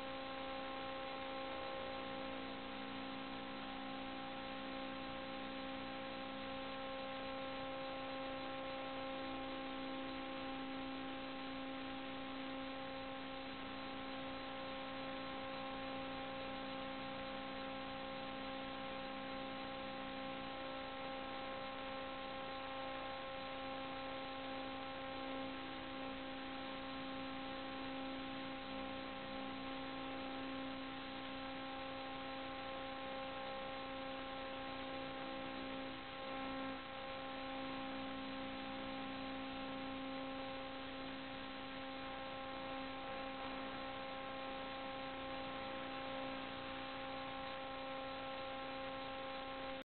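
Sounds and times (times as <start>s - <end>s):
electrical hum with whining overtones: 0.0s - 49.9s.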